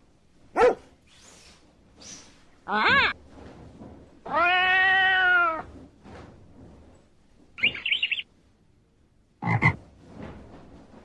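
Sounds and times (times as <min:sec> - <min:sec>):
cat meowing: 0:04.3 - 0:05.7
short high chirping: 0:07.6 - 0:08.2.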